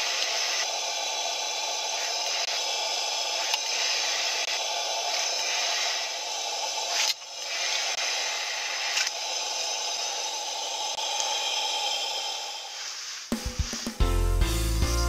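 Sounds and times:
steady hiss: 0.0s - 14.9s.

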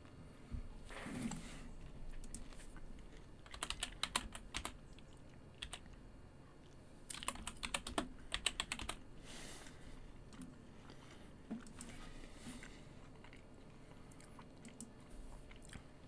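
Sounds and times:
computer keyboard typing: 2.2s - 2.5s, 3.4s - 4.8s, 5.6s - 6.0s, 7.1s - 9.0s.

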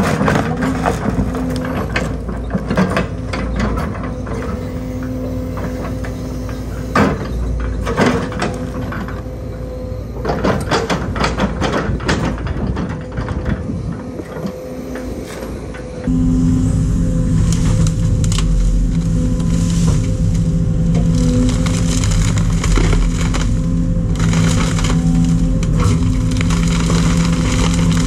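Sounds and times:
excavator diesel engine running: 0.0s - 28.0s
demolition grab knocking and clattering: 6.9s - 9.2s, 10.2s - 14.5s.

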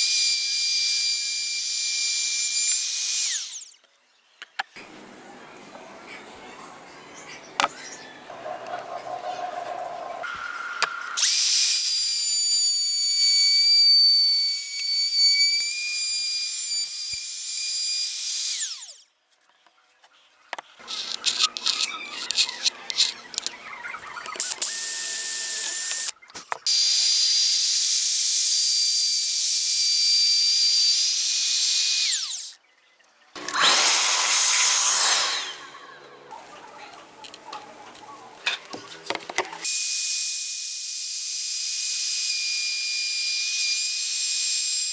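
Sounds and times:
router whining: 0.0s - 3.9s, 10.2s - 19.0s, 20.8s - 32.6s, 33.4s - 36.1s, 38.7s - 44.9s
drill running: 26.7s - 32.6s, 33.4s - 35.9s, 39.6s - 44.9s
loud cutting noise: 33.4s - 36.1s.

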